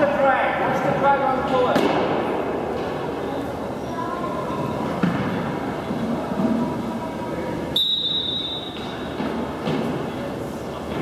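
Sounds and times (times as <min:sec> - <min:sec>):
gymnasium hubbub: 0:00.0 - 0:11.0
high whistle blast: 0:07.7 - 0:08.8.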